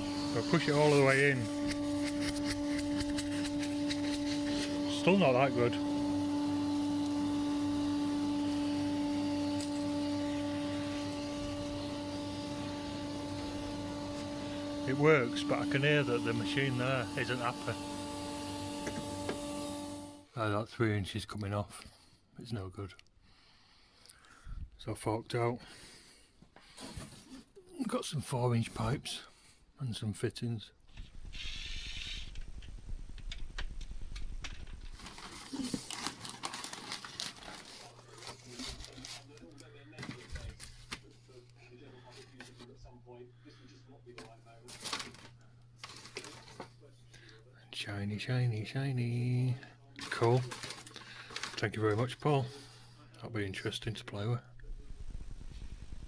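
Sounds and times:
dust extractor labouring hum: 0:00.0 - 0:20.2
paper packing crinkling: 0:00.2 - 0:05.9, 0:34.4 - 0:42.6, 0:44.2 - 0:46.8, 0:50.0 - 0:52.2.

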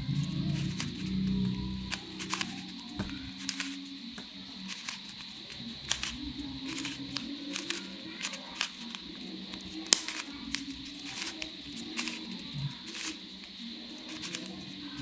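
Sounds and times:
puzzle cube plastic clicks: 0:00.4 - 0:15.0.

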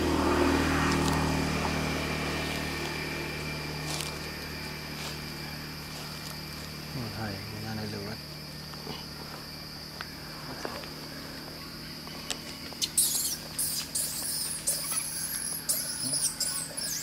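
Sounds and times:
high insect drone: 0:00.0 - 0:17.0
infant monkey squealing: 0:12.8 - 0:17.0.

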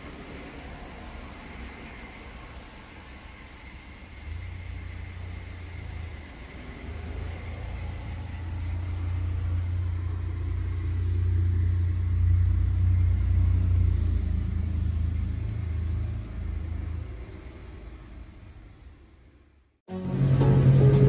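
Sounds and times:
faint high whine: 0:00.0 - 0:17.0
car engine running: 0:19.9 - 0:21.0.

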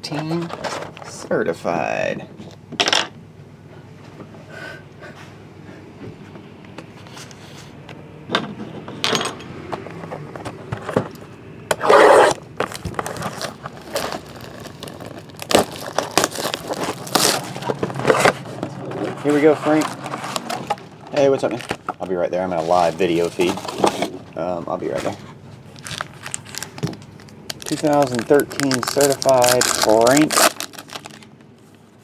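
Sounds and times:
cardboard tearing: 0:11.8 - 0:21.8, 0:25.7 - 0:26.9, 0:27.5 - 0:31.2
cardboard scraping: 0:11.8 - 0:24.2
cardboard rustling: 0:11.9 - 0:24.2, 0:24.8 - 0:31.8.

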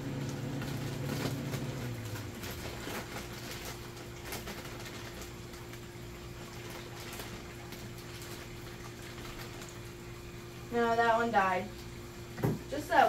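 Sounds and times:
plastic bag crinkling: 0:00.0 - 0:09.9.

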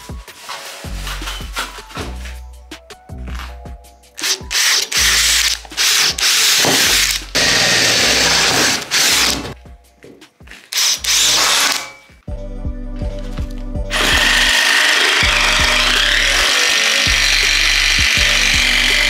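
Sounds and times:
cordless drill boring through metal: 0:04.2 - 0:09.6, 0:10.7 - 0:12.0, 0:13.9 - 0:19.0.

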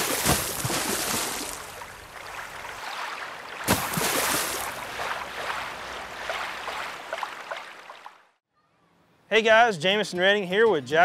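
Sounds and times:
rush of water-like noise: 0:00.0 - 0:08.1
splash-like hit: 0:03.6 - 0:05.6.

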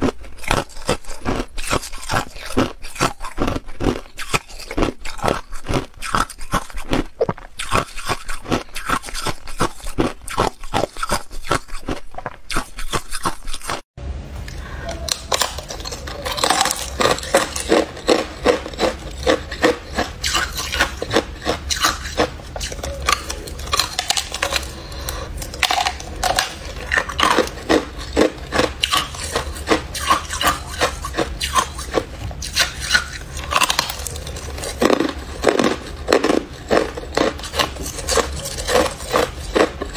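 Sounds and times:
ice being bitten and chewed: 0:00.0 - 0:13.8, 0:15.1 - 0:39.9
low steady hum: 0:14.0 - 0:39.9.

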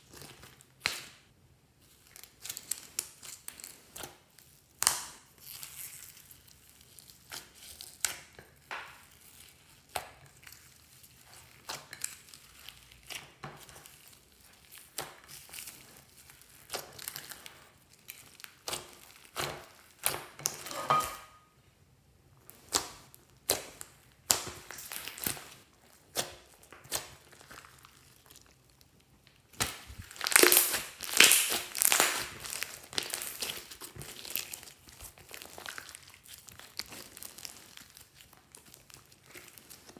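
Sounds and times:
slime squeezed by hand crackling: 0:22.5 - 0:39.9.

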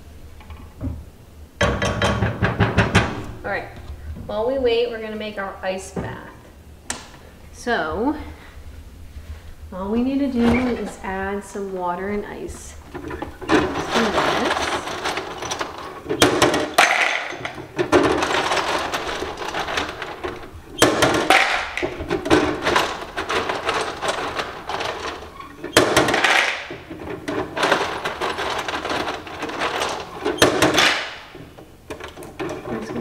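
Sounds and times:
ice cubes clattering into bowl: 0:13.2 - 0:31.3.

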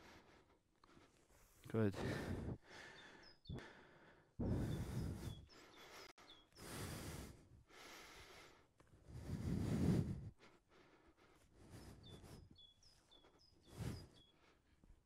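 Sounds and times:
person breathing out heavily: 0:02.0 - 0:12.5
small bird chirping: 0:02.8 - 0:03.6, 0:04.6 - 0:06.7, 0:11.6 - 0:14.6.

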